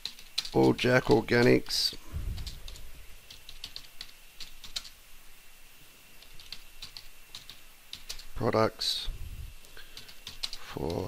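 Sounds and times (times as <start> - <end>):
keyboard typing clicks: 2.4 - 5.0, 6.2 - 8.3, 9.9 - 11.0.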